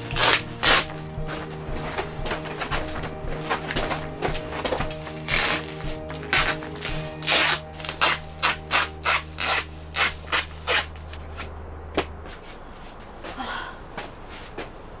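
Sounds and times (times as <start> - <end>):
hand rubbing strokes: 0.0 - 11.5
steady low hum: 0.0 - 15.0.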